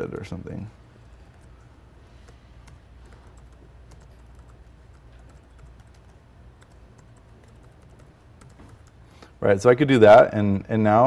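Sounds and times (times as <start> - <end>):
computer keyboard key clicks: 2.2 - 9.0.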